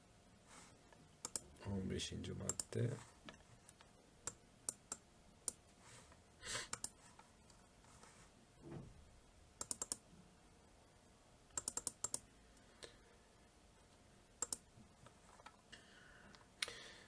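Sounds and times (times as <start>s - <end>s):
computer keyboard keys clicking: 1.2s - 1.5s, 2.4s - 2.7s, 9.6s - 10.0s, 11.6s - 12.2s, 14.4s - 14.6s.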